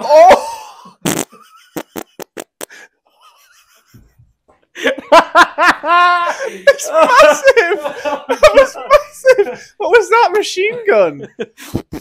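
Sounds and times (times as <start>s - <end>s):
man farting: 1.0s - 2.8s, 11.7s - 12.0s.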